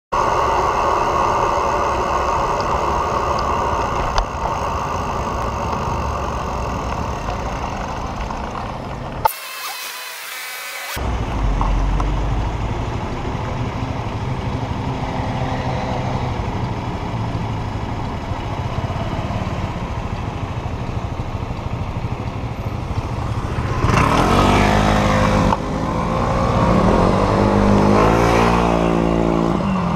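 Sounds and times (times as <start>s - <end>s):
scooter engines idling: 0.2s - 9.7s, 16.3s - 25.6s
motorbikes accelerating away: 23.0s - 29.9s.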